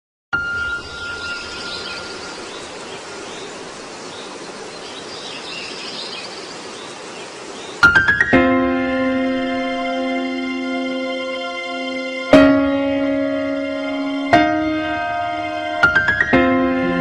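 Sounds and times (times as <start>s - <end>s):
rising piano notes: 0.4s - 3.8s, 7.8s - 17.0s
faint bird chirps: 0.4s - 8.2s
outdoor ambience hiss: 0.4s - 17.0s.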